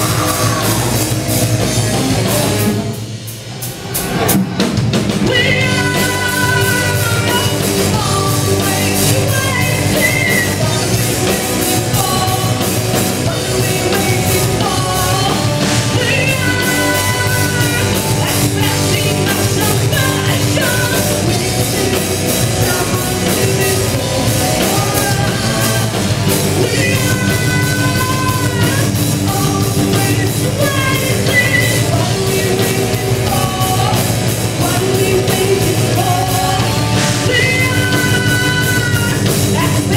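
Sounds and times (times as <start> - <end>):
heavy metal band playing: 0.0 - 39.9
woman singing: 5.2 - 39.9.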